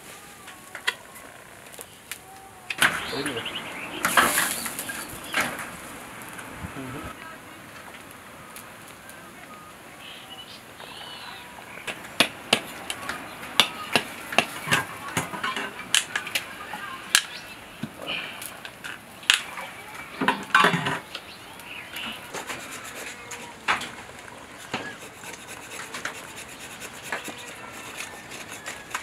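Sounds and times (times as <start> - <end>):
knife scraping coconut shell: 22.2 - 23.7, 24.6 - 29.0.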